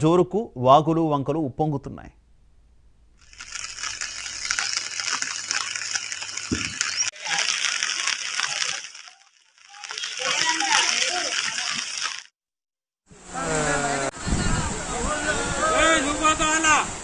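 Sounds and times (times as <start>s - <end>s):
rushing floodwater hiss: 3.3s - 12.3s.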